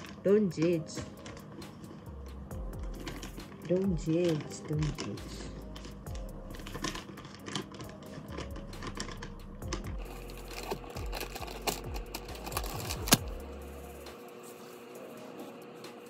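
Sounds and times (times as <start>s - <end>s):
small objects clicking and tapping: 2.7s - 13.3s
steady low hum: 8.5s - 16.0s.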